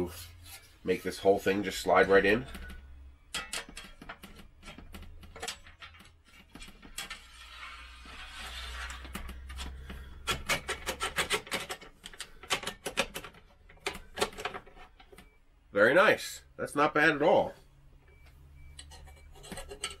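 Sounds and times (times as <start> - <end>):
panel scraping along frame: 5.5 - 11.6.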